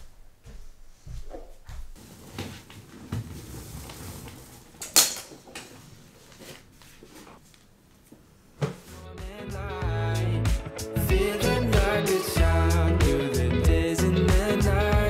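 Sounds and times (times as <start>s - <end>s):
clothes rustling: 0.1s - 9.0s.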